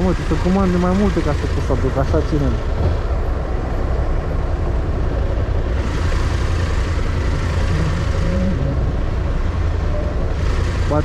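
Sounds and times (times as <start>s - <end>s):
motorcycle engine running: 5.7s - 11.0s.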